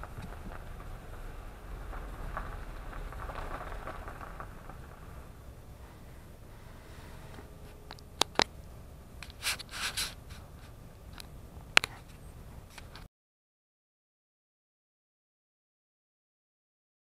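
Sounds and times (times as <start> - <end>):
car rumble: 0.0 - 13.1.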